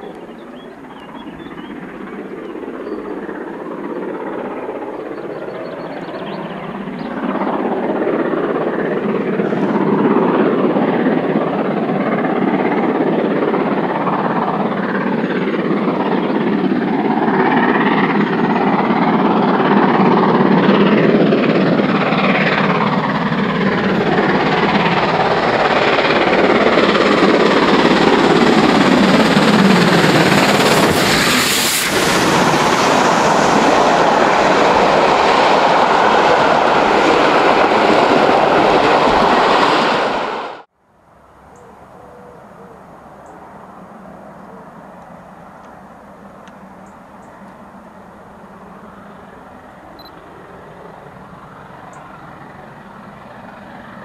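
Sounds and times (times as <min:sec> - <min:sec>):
coaches rolling on rails: 0:00.0 - 0:40.6
steam locomotives passing: 0:00.0 - 0:54.0.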